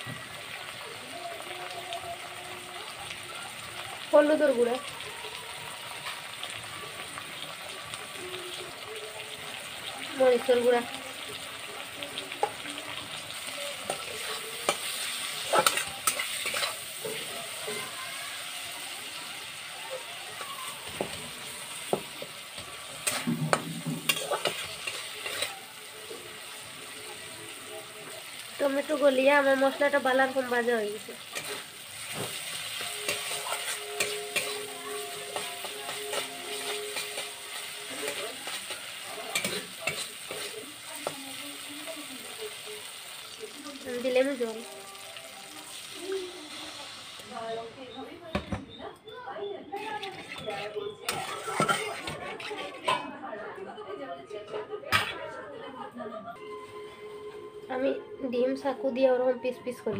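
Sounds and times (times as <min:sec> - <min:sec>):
food sizzling in oil: 0:00.0 - 0:48.8, 0:49.7 - 0:53.0
metal spatula scraping pan: 0:13.4 - 0:18.0, 0:20.9 - 0:26.2, 0:31.0 - 0:41.2, 0:49.8 - 0:53.2.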